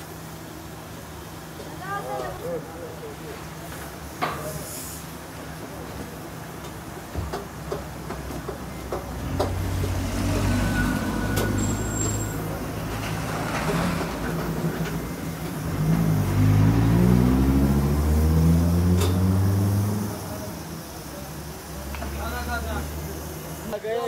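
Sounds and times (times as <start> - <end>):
large vehicle engine running: 7.6 - 23.3.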